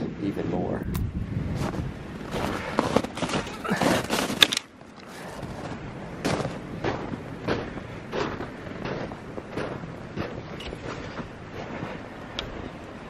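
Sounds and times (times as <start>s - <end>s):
wind buffeting microphone: 0.0s - 13.0s
boots crunching through snow: 1.5s - 4.5s, 5.1s - 12.0s.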